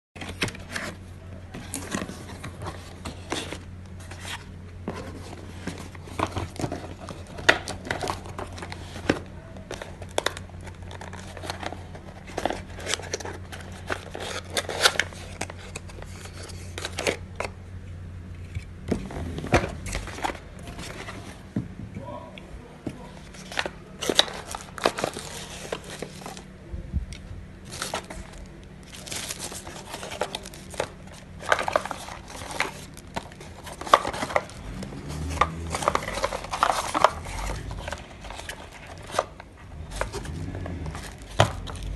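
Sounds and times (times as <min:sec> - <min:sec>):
wrapping crinkling: 0:23.2 - 0:26.5, 0:27.6 - 0:41.9
cardboard rubbing and clicking: 0:29.0 - 0:41.9.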